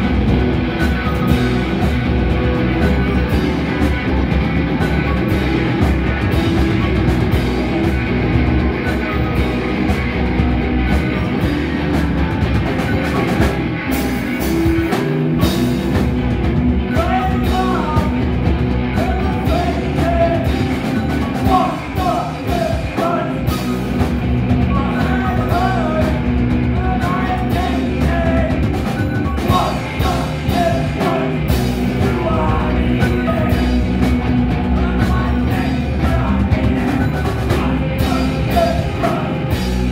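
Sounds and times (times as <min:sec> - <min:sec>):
live rock band playing: 0:00.0 - 0:39.9
person singing lead vocal: 0:16.9 - 0:18.3, 0:18.9 - 0:23.9, 0:24.6 - 0:28.7, 0:29.4 - 0:39.9.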